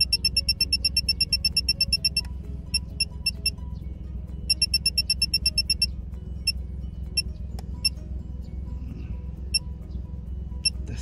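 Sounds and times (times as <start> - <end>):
high electronic alarm beeps: 0.0 - 3.6, 4.5 - 6.6
road and engine rumble: 0.0 - 11.0.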